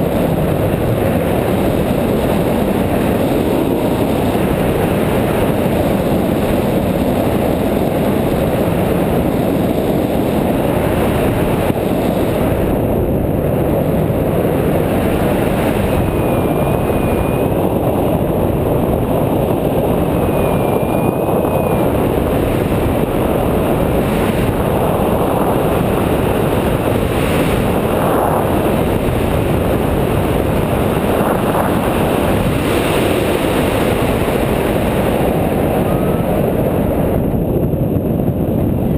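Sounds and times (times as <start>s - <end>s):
wind rushing over microphone: 0.0s - 38.9s
faint wavering high tone: 16.0s - 17.7s, 20.2s - 22.0s.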